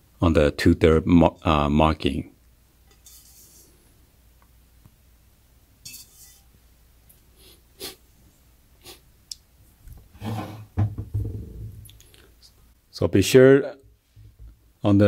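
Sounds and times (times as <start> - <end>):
dull knock on housing: 10.8 - 11.7.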